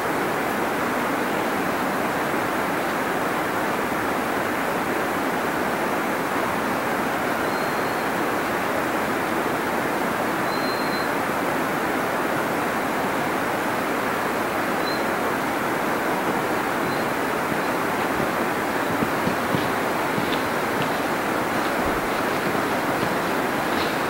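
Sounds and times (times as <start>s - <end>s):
waterfall rushing: 12.7s - 24.0s.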